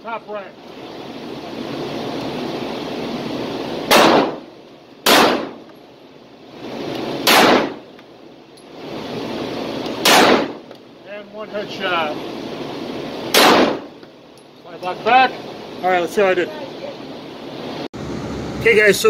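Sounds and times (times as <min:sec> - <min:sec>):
pistol shots: 0:03.8 - 0:05.7, 0:07.0 - 0:07.9, 0:09.9 - 0:10.7, 0:13.2 - 0:14.0.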